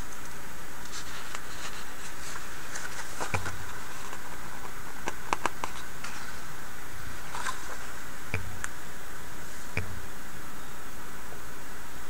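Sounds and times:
steady background hiss: 0:00.0 - 0:12.0
paper pages rustling: 0:00.9 - 0:04.8, 0:07.2 - 0:08.0.

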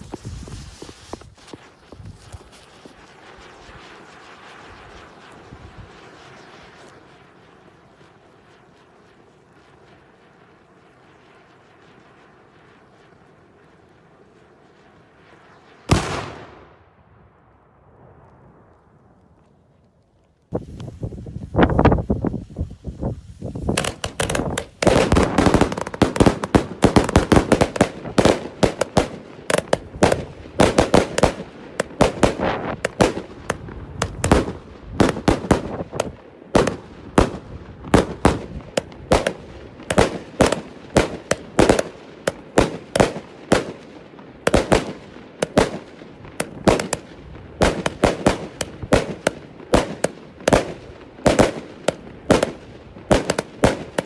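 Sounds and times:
rushing hiss of sparks: 0:00.0 - 0:03.1, 0:20.5 - 0:24.9
firework fountain crackling: 0:00.0 - 0:54.0.

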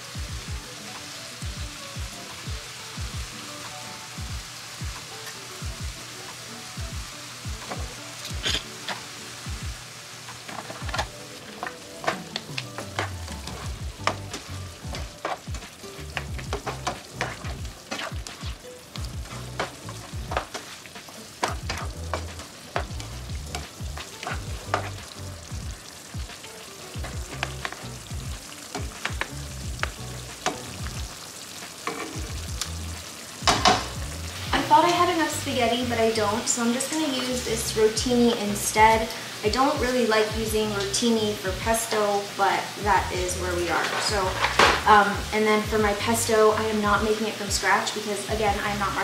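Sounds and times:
chicken sizzling in a frying pan: 0:00.0 - 0:49.0
plastic utensil scraping a pan: 0:43.8 - 0:44.8.

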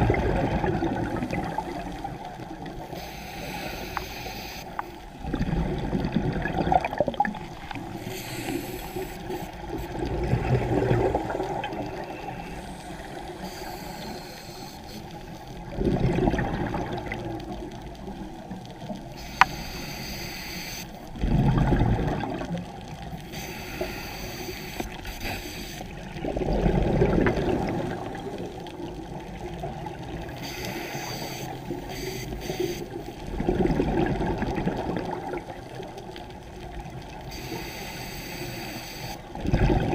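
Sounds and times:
steady quiet hiss: 0:00.0 - 0:05.2, 0:07.4 - 0:15.8, 0:17.2 - 0:21.2, 0:22.7 - 0:26.2, 0:35.7 - 0:39.4
regulator bubbles underwater: 0:00.0 - 0:20.0, 0:20.9 - 0:39.9.

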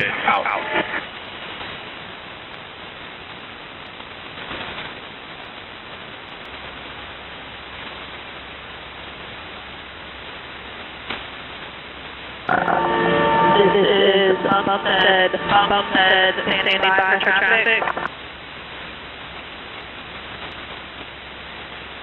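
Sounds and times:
shortwave radio static: 0:00.0 - 0:03.5, 0:12.4 - 0:22.0
low hum: 0:12.4 - 0:21.9.

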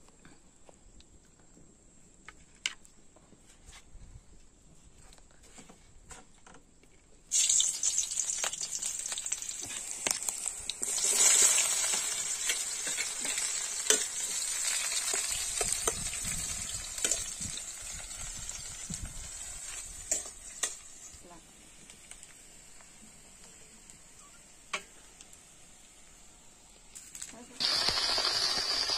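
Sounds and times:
onions sizzling in hot oil: 0:07.3 - 0:28.9.

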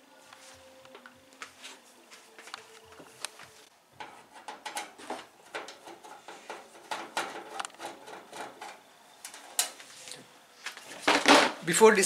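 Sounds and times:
hands handling microwave oven: 0:04.0 - 0:09.8.

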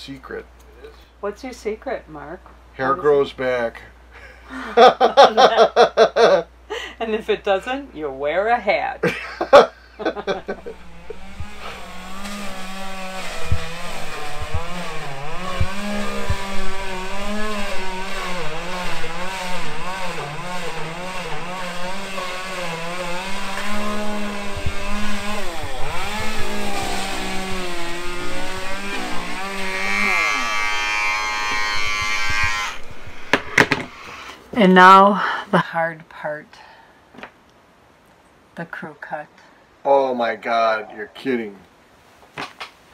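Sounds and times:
electric hair clippers buzzing: 0:10.1 - 0:34.4.

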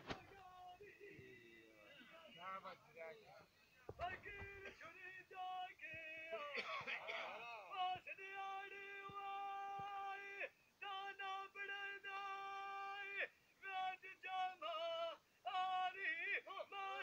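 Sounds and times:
man singing unaccompanied: 0:04.0 - 0:06.9, 0:07.6 - 0:17.0.

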